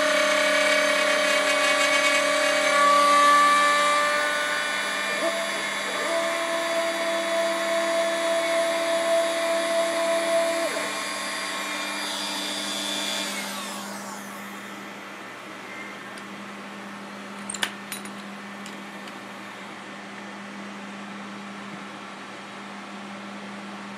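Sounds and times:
router spinning down: 0.0s - 14.9s
router spindle cutting wood: 0.0s - 16.3s.

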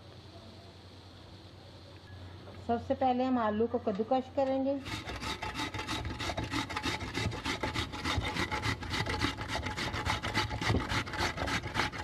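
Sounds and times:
potato grating on metal grater: 4.8s - 12.0s.

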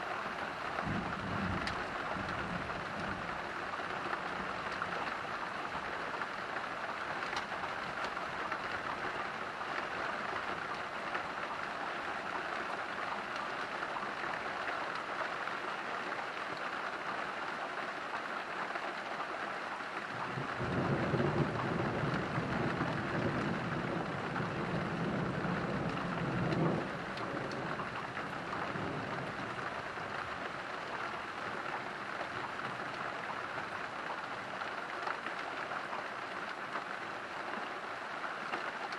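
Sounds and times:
steady rain falling: 0.0s - 38.9s
low rumble of thunder: 0.7s - 6.3s, 20.2s - 30.6s.

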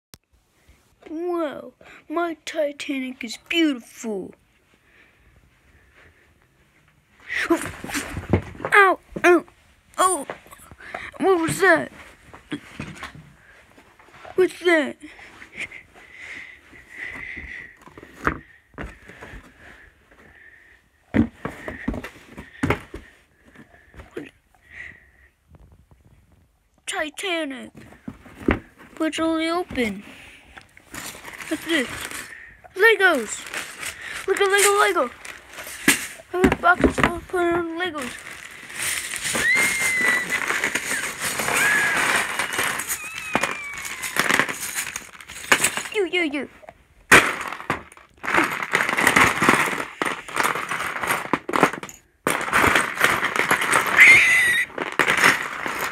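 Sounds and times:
plastic bag crinkling: 27.8s - 55.9s.

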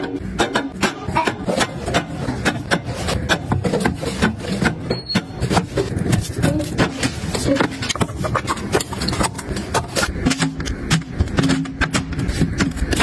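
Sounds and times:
rubbing on shelves: 1.5s - 9.7s.

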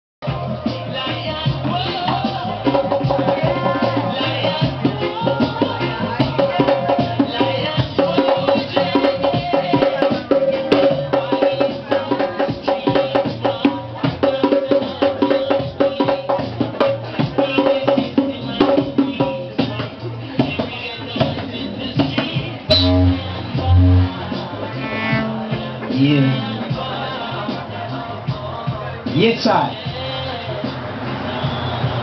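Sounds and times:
heavy low thumps: 22.7s - 26.0s
held note: 22.7s - 26.6s.

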